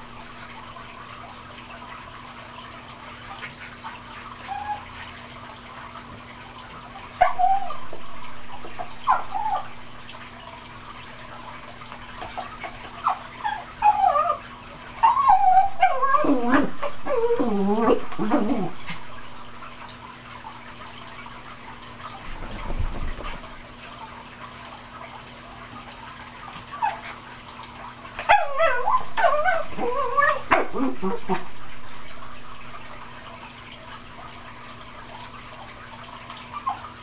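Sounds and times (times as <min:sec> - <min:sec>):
dog yipping and whining: 0:04.4 - 0:04.9, 0:07.2 - 0:08.0, 0:08.7 - 0:09.8, 0:12.4 - 0:19.0, 0:26.8 - 0:27.1, 0:28.2 - 0:31.5, 0:36.5 - 0:36.9.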